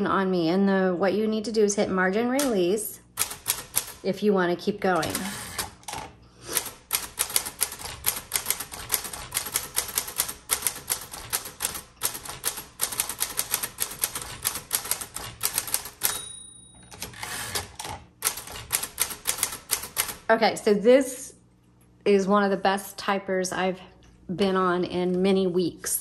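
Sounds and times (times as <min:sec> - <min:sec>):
manual typewriter typing: 0:02.4 - 0:04.1, 0:04.9 - 0:16.3, 0:16.9 - 0:20.3.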